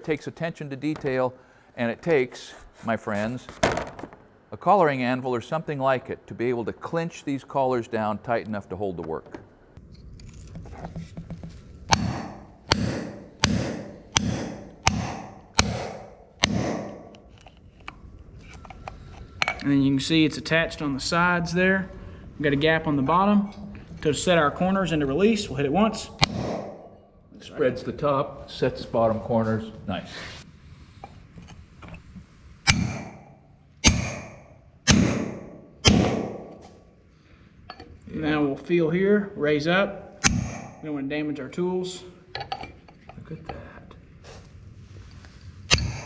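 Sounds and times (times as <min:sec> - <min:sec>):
hammer striking metal: 0:11.9 - 0:17.2, 0:26.2 - 0:27.0, 0:32.7 - 0:36.7, 0:40.2 - 0:40.8, 0:45.7 - 0:46.0.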